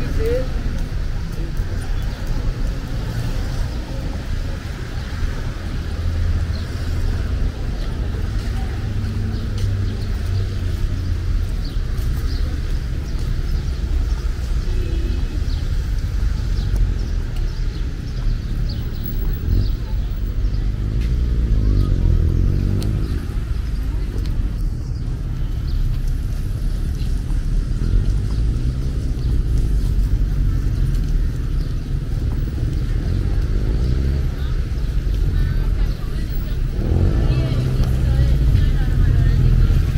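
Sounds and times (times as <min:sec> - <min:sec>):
rumble of motor vehicles: 0:00.0 - 0:39.9.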